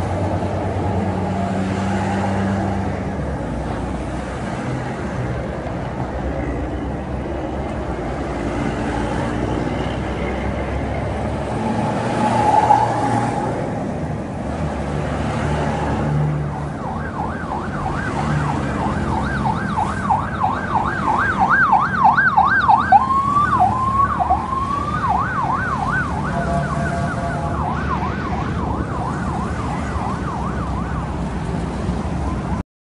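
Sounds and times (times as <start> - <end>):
rumble of passing vehicles: 0.0 - 32.6
police siren yelping: 11.4 - 13.7, 16.5 - 31.4.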